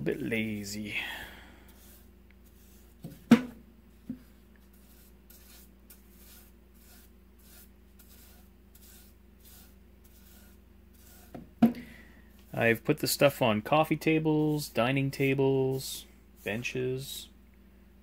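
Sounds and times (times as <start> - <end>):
steady low hum: 0.0 - 18.0
brush swishing on wood: 0.2 - 3.3, 3.9 - 11.6, 12.3 - 17.2
sharp knocks: 3.2 - 3.6.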